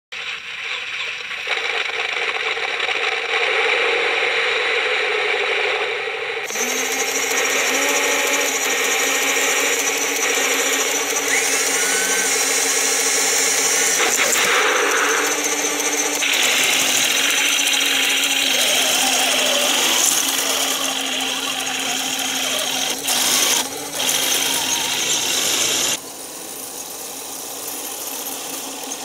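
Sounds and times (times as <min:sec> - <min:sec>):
toy tank mechanical rattle and whir: 0:06.5 - 0:29.0.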